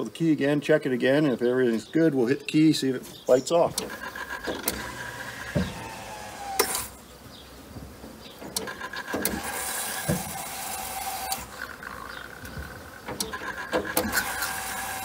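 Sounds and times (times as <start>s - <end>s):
electric fuel pump whining: 3.7s - 7.0s, 8.4s - 15.0s.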